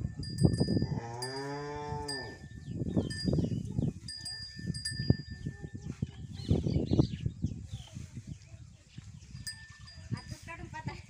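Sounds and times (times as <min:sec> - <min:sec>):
high ringing tinkles: 0:00.0 - 0:05.8, 0:09.4 - 0:10.6
cow mooing: 0:00.8 - 0:02.4.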